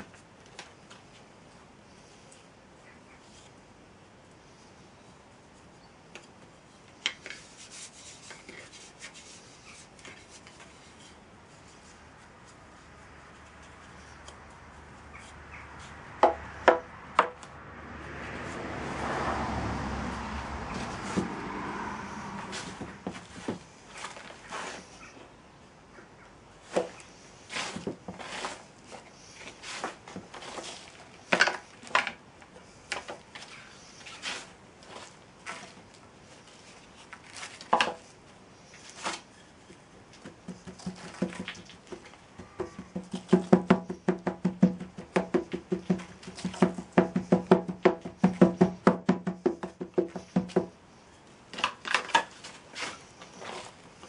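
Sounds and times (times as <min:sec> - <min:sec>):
sand rammed with thuds: 0:26.6 - 0:31.4, 0:40.2 - 0:50.7
sand scooped and pressed by hand: 0:26.9 - 0:31.2.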